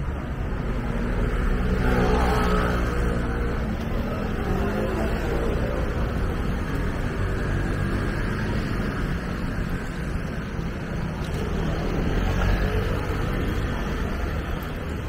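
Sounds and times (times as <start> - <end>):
passing vehicles rumbling: 0.0 - 15.0.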